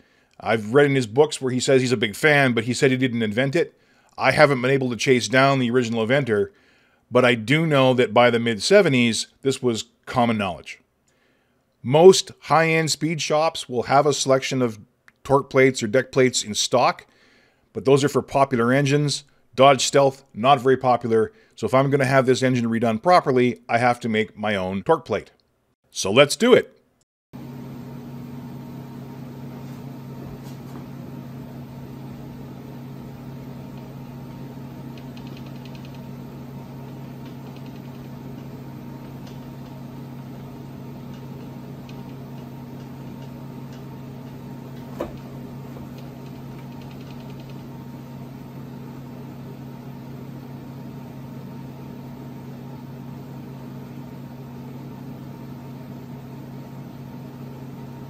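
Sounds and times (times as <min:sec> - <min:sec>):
bench mill humming: 0:27.4 - 0:58.0.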